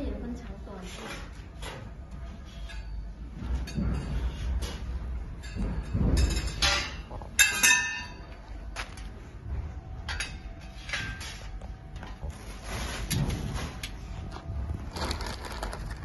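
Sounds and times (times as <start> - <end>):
metal tubes knocking and clinking: 2.6 - 9.1, 10.0 - 11.6.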